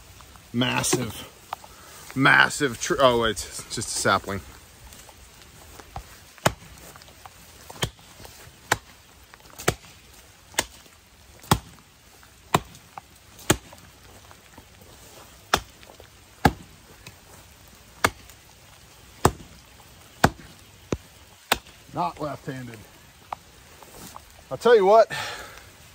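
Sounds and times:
axe chopping into sapling: 6.4 - 6.8, 7.7 - 11.8, 12.5 - 13.8, 15.5 - 17.2, 18.0 - 18.4, 19.2 - 19.6, 20.2 - 21.8.

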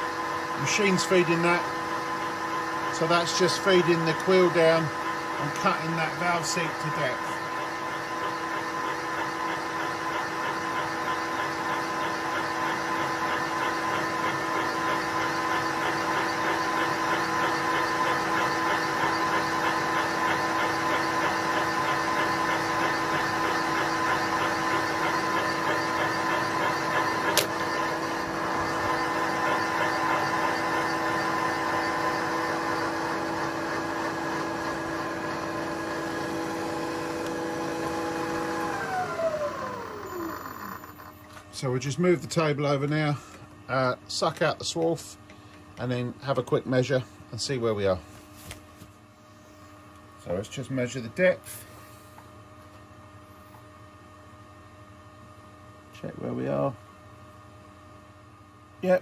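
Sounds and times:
milling machine motor hum: 0.0 - 41.4.

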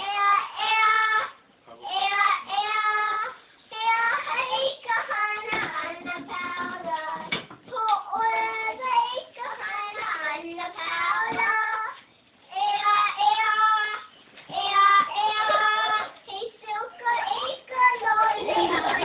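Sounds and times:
girl singing high notes: 7.7 - 18.4.

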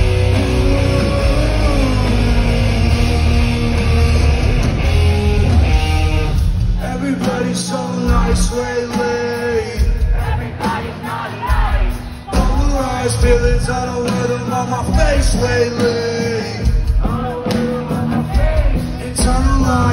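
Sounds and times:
man singing: 0.0 - 4.7, 6.7 - 19.9
live rock band playing: 0.0 - 19.9.

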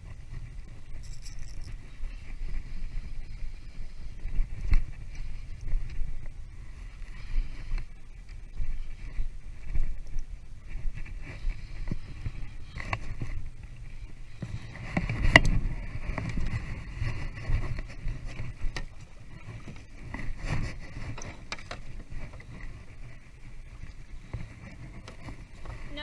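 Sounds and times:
fishing reel whirring: 0.8 - 4.2.

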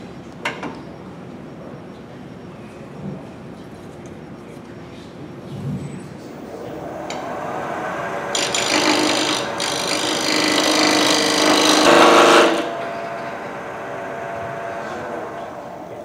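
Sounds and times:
wood lathe running: 6.3 - 16.0
turning tool cutting wood: 6.6 - 16.0.

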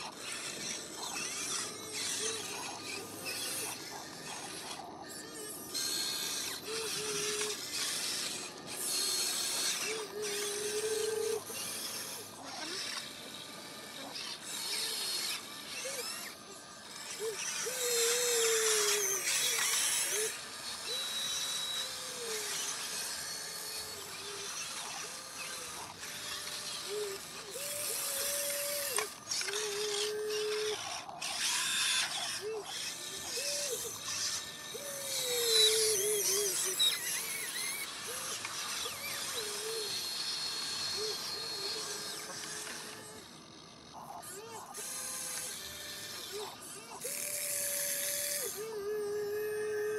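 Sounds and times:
electric motors whining: 0.0 - 49.9.

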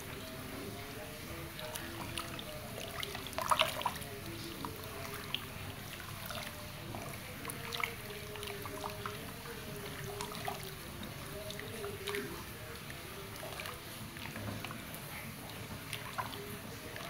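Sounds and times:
batter squelching and sloshing: 0.0 - 17.0.

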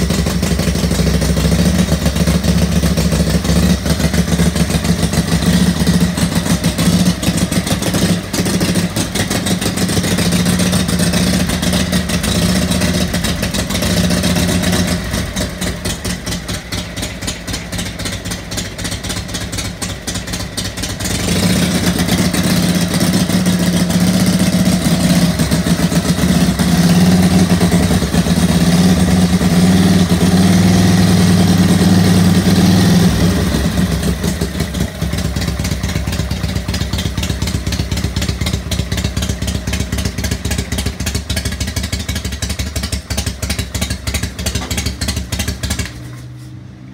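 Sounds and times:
motorcycle engine idling: 0.0 - 46.9.

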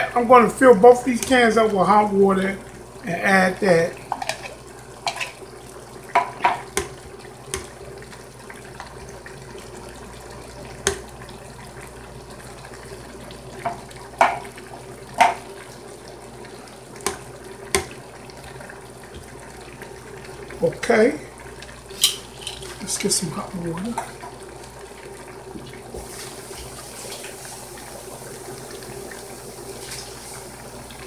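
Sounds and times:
spatula knocking on a pot: 13.6 - 14.4, 15.2 - 15.4.

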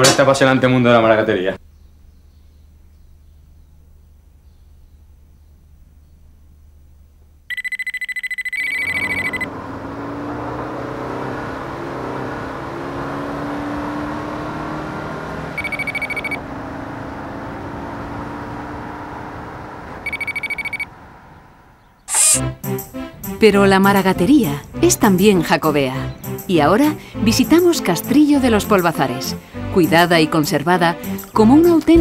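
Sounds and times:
trilling electronic ring: 7.5 - 9.5, 15.6 - 16.4, 20.0 - 20.9
vehicle running noise: 8.5 - 32.0.

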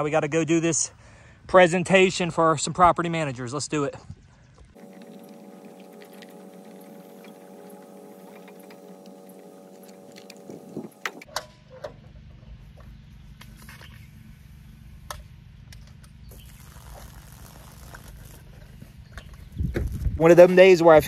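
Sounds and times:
hose reel motor hum: 4.8 - 11.3
low steady rumble: 4.8 - 11.3.

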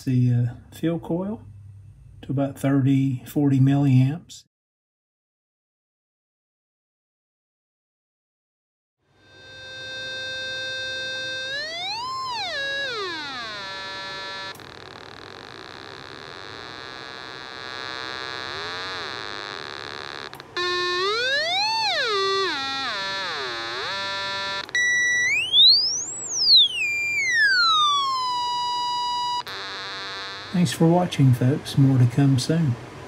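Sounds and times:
buzzy test tone sweeping: 9.1 - 31.4
sharp clicks: 14.5 - 15.6.

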